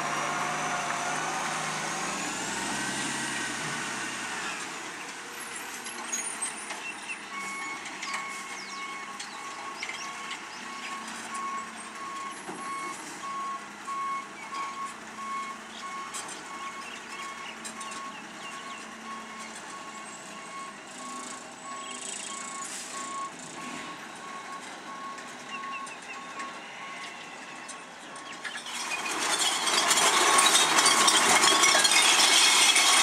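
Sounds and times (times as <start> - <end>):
garbage truck engine running: 6.8 - 33.0
reversing alarm beeping: 7.3 - 27.8.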